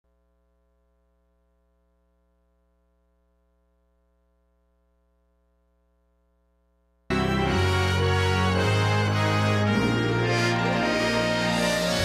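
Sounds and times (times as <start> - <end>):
faint electrical hum: 0.0 - 7.1.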